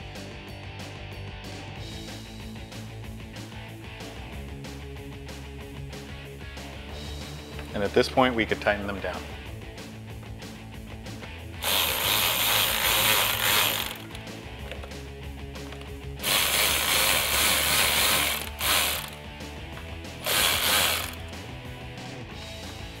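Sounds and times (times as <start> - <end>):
cordless electric ratchet running: 11.6 - 14.3, 16.2 - 19.2, 20.2 - 21.4.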